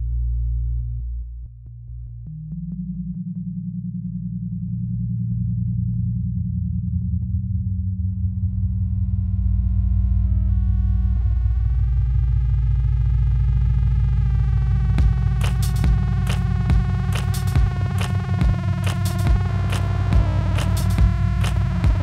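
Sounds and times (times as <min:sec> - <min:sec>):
low synthesizer drone: 0:00.0 - 0:22.0
distorted buzzing tone: 0:11.3 - 0:22.0.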